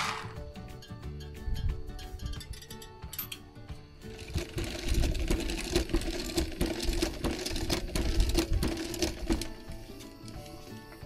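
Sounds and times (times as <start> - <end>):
spin mop whirring and rattling: 0.0 - 0.4, 4.0 - 11.0.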